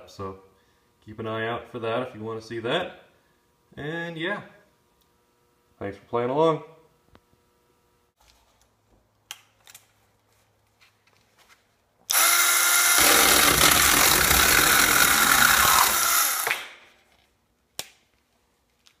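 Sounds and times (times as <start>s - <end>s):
electric chainsaw cutting wood: 12.1s - 16.7s.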